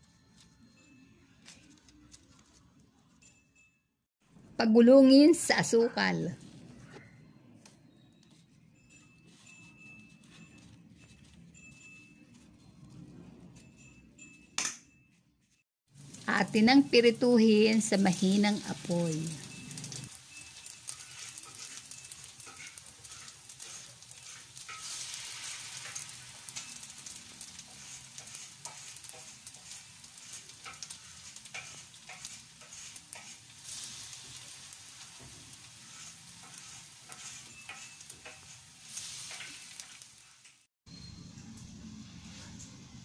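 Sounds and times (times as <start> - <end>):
oil sizzling in a wok: 15.9 - 41.3.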